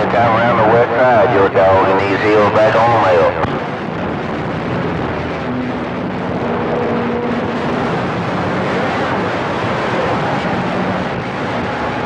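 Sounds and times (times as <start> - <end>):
radio static hiss: 0.0 - 3.7.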